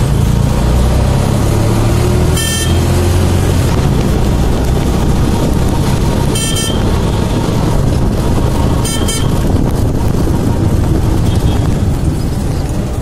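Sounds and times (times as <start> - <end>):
road noise: 0.0 - 13.0
vehicle engine rumble: 0.0 - 13.0
horn beeps: 2.3 - 2.9, 6.3 - 6.9, 8.8 - 9.4.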